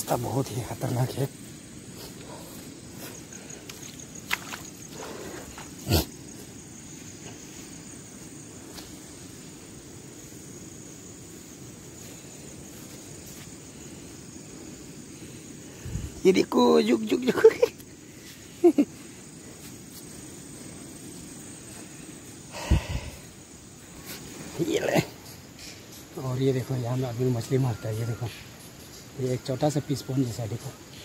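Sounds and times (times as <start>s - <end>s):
crickets trilling: 0.0s - 31.0s
footsteps through undergrowth: 10.9s - 13.9s.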